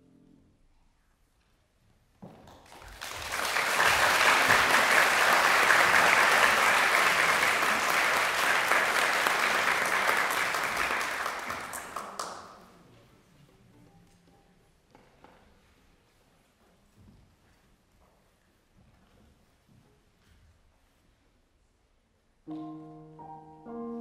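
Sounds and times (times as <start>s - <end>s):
audience applauding: 2.5s - 12.6s.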